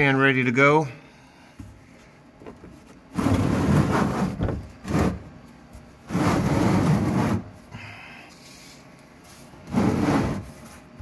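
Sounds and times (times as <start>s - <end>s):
plastic pan scraping on concrete: 3.1s - 5.3s, 6.0s - 7.6s, 9.6s - 10.9s.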